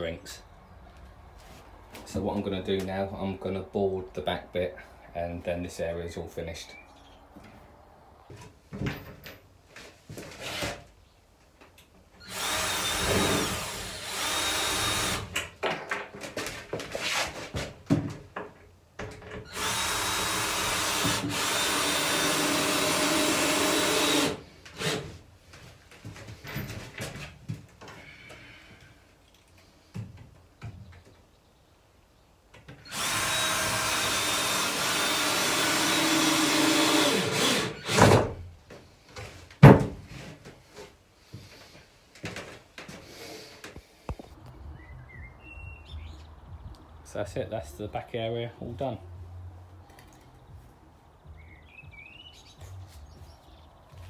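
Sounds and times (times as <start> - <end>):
cordless drill driving screws: 12.2 - 15.4, 19.5 - 25.1, 32.8 - 38.2
boards knocking and clattering: 39.6 - 40.2.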